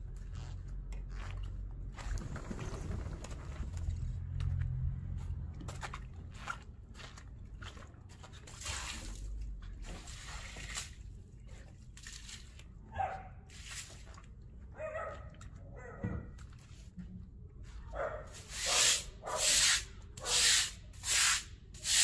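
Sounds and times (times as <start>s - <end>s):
brush scrubbing wet concrete: 8.3s - 12.7s, 13.5s - 14.4s, 17.7s - 22.0s.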